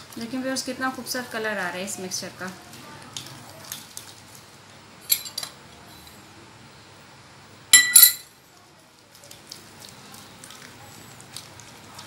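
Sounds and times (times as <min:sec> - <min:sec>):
spoon clinking against ceramic bowl: 0:07.8 - 0:08.3.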